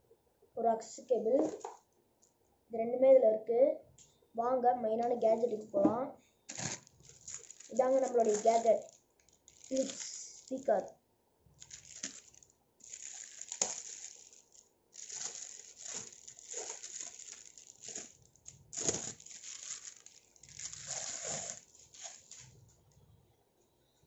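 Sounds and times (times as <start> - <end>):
plastic wrapping crinkling: 1.4 - 1.8, 6.5 - 10.9, 11.5 - 22.9.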